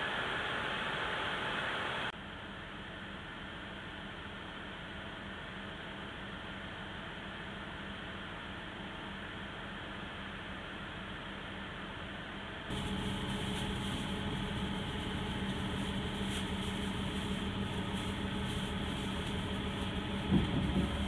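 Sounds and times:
railcar engine drone: 0.0 - 21.0.

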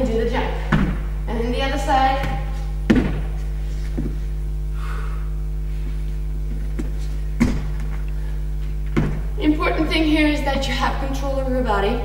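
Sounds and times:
low electrical hum: 0.0 - 12.0
thuds on wooden floor: 0.7 - 1.1, 2.2 - 3.4, 6.6 - 8.0, 8.9 - 9.3.

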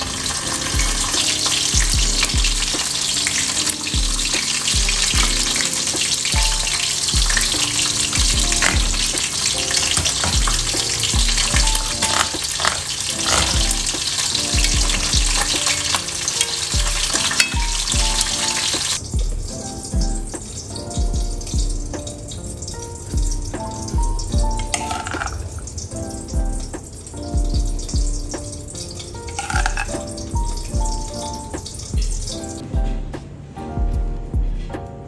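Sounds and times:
sauce sizzling in a pot: 0.0 - 19.0
background music with low beat: 0.0 - 35.0
metal ladle stirring pot: 4.5 - 19.0, 29.4 - 30.0.

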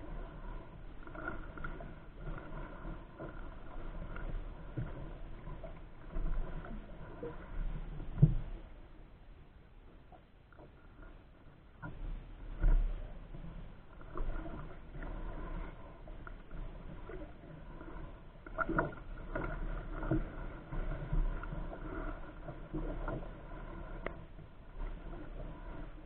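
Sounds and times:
paddle dipping through water: 0.0 - 26.0.

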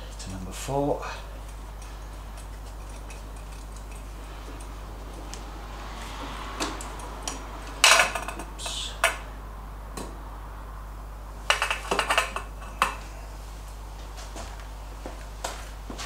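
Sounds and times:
steady low hum: 0.0 - 16.0
metallic clinks and clatter: 1.3 - 5.3.

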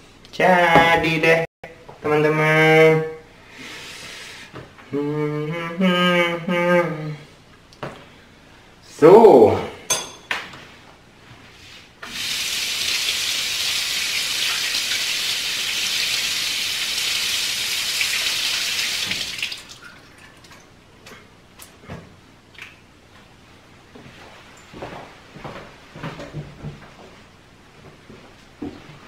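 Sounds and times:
kitchen tap running: 12.0 - 20.6.

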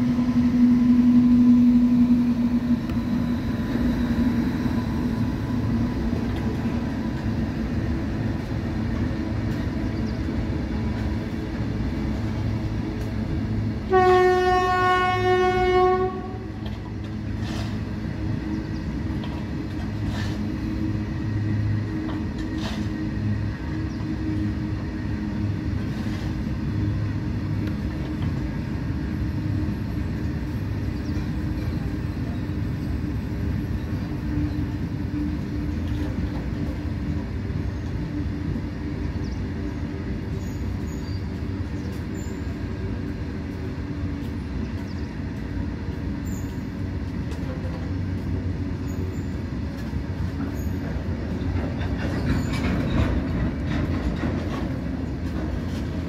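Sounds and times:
freight train rumbling past: 0.0 - 56.0
wheels clicking over rail joints: 49.7 - 56.0.

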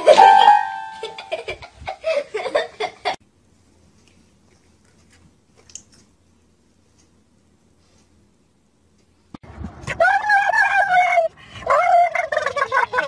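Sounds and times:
ringing tone: 0.1 - 1.3.

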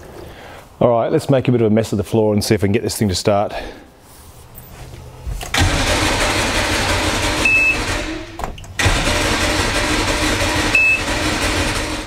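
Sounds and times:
outboard motor cranking: 5.5 - 12.0.

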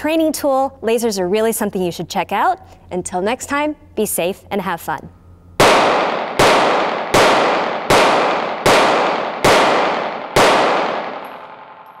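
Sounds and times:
pistol shots echoing indoors: 5.6 - 12.0.

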